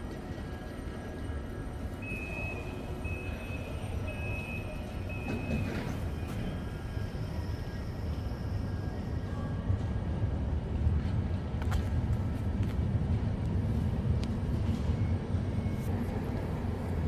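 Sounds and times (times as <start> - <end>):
low rumble of construction noise: 0.0 - 17.0
electronic warning beeps: 2.0 - 6.6.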